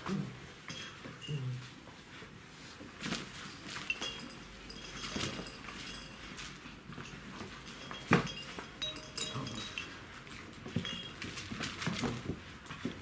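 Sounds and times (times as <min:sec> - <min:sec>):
puppies scuffling: 0:00.6 - 0:13.0
high pings: 0:07.8 - 0:10.0.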